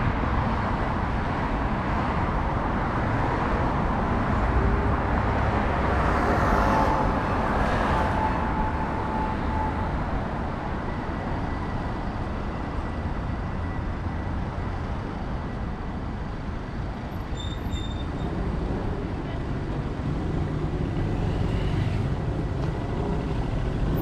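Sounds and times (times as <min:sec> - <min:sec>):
road traffic rumble: 0:00.0 - 0:24.0
brief high squeak: 0:17.3 - 0:18.2.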